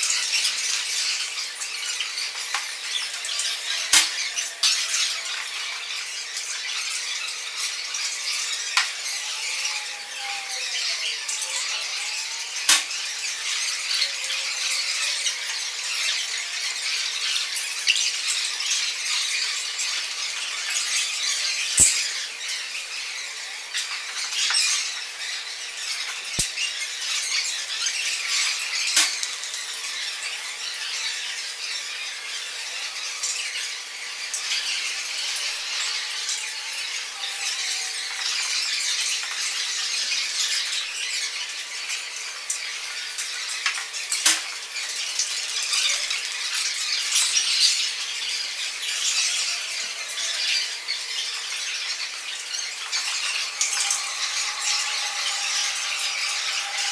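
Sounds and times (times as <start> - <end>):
broken glass scratching and clinking: 19.9 - 22.5, 49.1 - 56.9.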